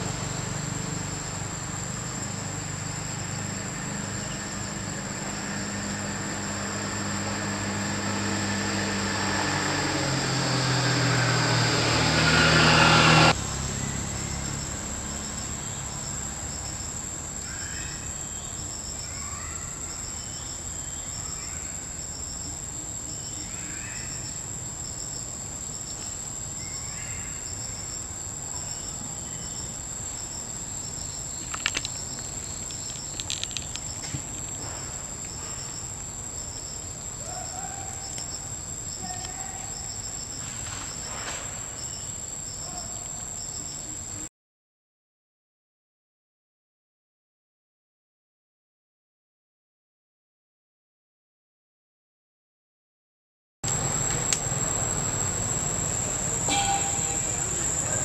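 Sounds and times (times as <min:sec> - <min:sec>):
short rising calls: 0:00.0 - 0:22.0, 0:53.7 - 0:58.0
pulsing insect chirp: 0:00.0 - 0:44.2, 0:53.7 - 0:58.0
insects high-pitched whine: 0:00.0 - 0:44.3, 0:53.7 - 0:58.0
sharp clicks: 0:31.4 - 0:34.6.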